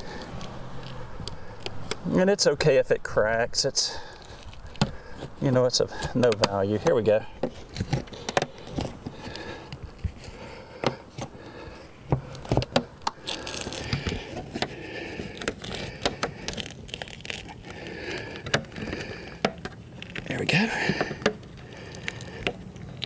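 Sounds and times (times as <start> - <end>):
sealant clicking and crackling: 0.0 - 2.2, 4.0 - 23.0
metal blade scraping plastic: 12.1 - 21.6.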